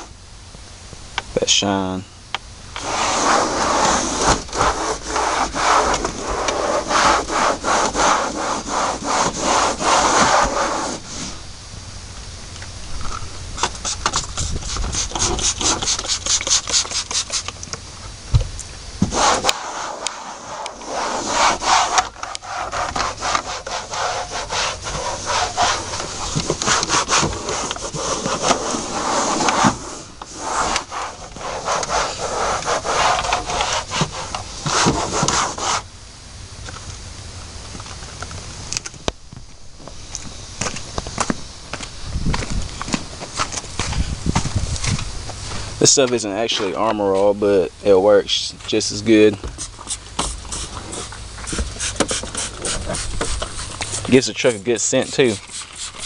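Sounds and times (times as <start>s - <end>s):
towel wiping plastic dashboard: 2.8s - 11.4s, 13.6s - 17.6s, 19.0s - 35.8s, 49.4s - 56.0s.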